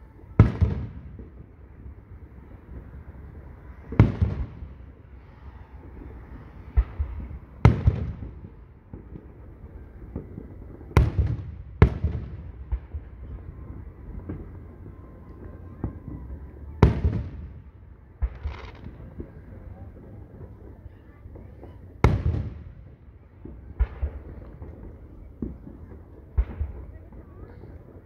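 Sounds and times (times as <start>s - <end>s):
firework shells booming: 16.8s - 28.0s.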